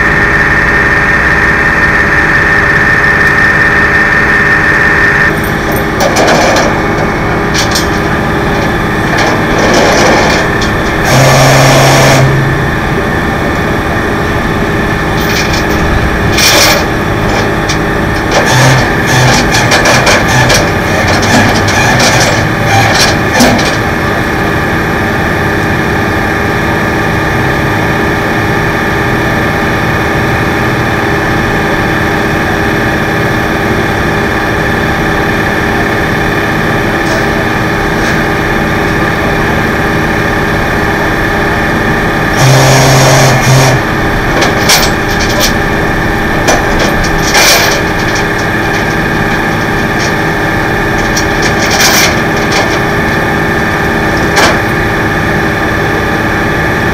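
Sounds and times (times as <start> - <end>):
loud low tone: 0.0 - 19.4, 27.2 - 51.1
tow truck engine idling: 0.0 - 56.9
short knocks and clanks: 5.4 - 11.2, 54.2 - 54.8.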